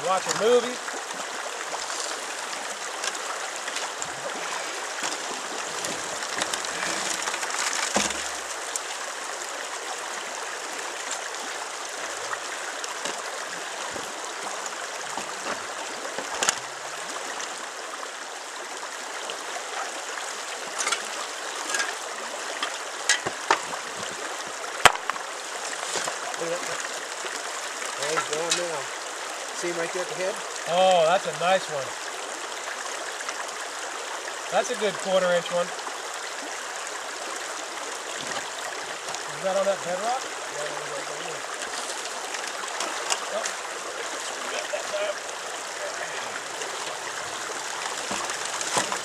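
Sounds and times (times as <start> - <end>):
river rushing over rocks: 0.0 - 49.0
sharp stone clicks: 24.8 - 25.2.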